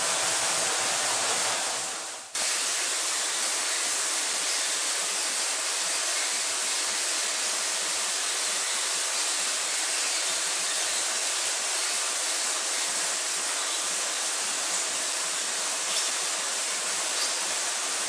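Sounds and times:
feeder machine hissing: 0.0 - 18.0.

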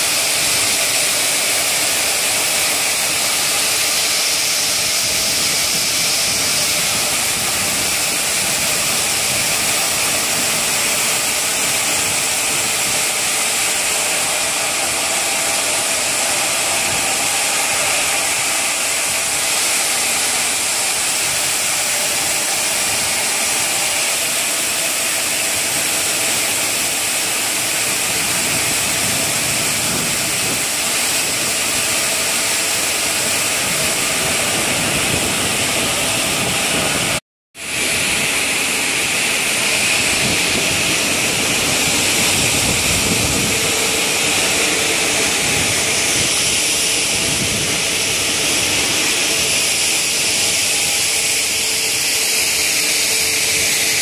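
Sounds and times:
stone saw grinding: 0.0 - 54.0.

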